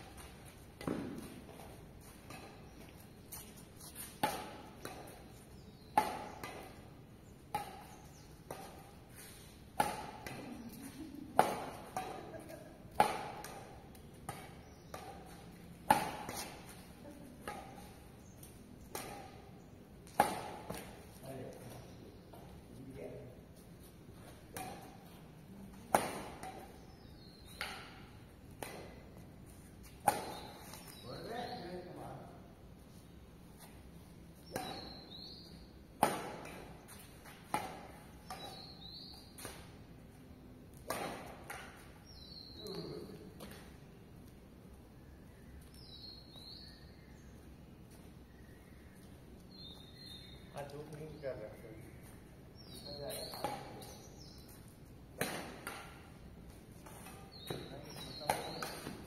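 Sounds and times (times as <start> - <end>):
rackets hitting shuttlecock: 0.0 - 22.6, 24.2 - 32.1, 33.6 - 44.4, 52.0 - 59.0.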